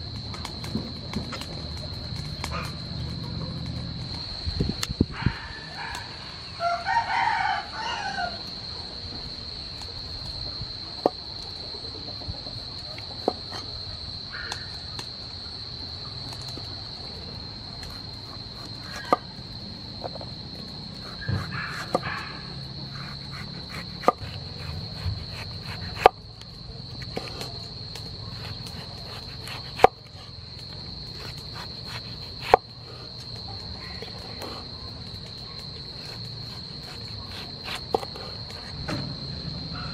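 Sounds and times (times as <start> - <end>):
rooster crowing: 5.1 - 8.6, 39.7 - 39.9
cleaver chopping on wooden board: 18.8 - 19.3, 21.2 - 22.2, 22.9 - 26.2, 28.4 - 30.0, 31.2 - 32.7.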